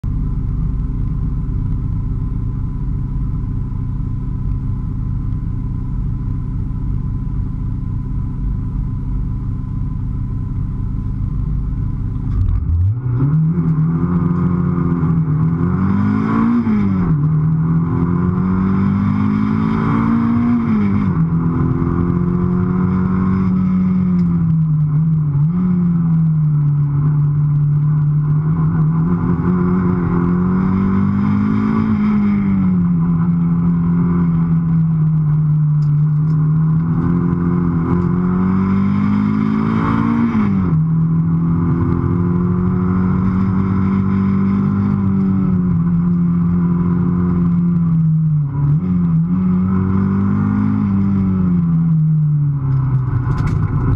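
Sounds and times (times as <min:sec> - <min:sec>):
car engine revving: 0:00.0 - 0:53.9.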